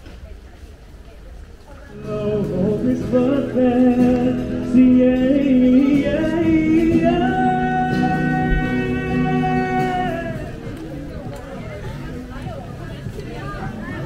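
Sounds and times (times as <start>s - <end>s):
person singing: 1.9s - 10.7s
acoustic guitar: 1.9s - 14.0s.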